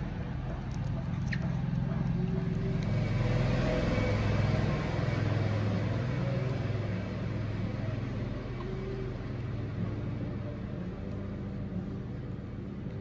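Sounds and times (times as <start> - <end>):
low engine rumble: 0.0 - 13.0.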